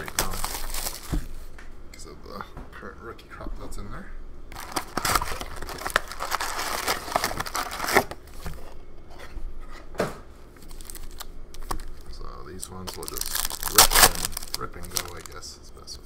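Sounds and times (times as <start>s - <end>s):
foil pack rustling: 0.0s - 1.5s, 4.5s - 8.5s, 10.6s - 12.2s, 12.8s - 15.4s
cardboard box tearing: 4.6s - 8.1s.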